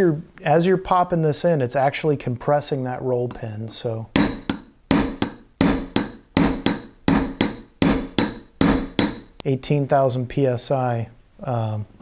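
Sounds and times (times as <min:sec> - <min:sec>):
hammer tapping metal punch: 0:04.1 - 0:09.4.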